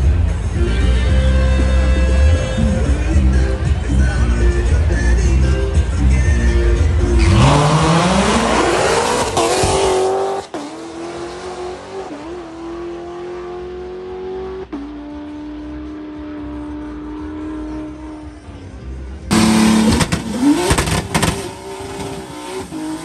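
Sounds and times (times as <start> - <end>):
race car engine accelerating: 7.0 - 18.6, 19.3 - 23.0.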